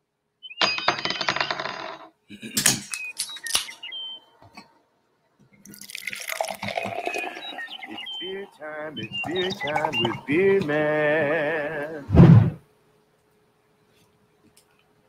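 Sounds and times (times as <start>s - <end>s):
bird chirps: 0.4s - 1.0s, 2.9s - 4.4s, 6.6s - 10.8s
metallic clinking and ringing: 0.6s - 2.1s, 2.7s - 3.9s.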